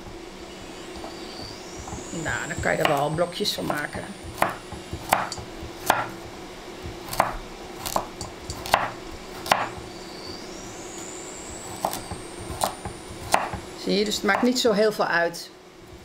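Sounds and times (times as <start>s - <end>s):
knife chopping on wooden board: 0.9s - 10.4s, 11.5s - 13.7s.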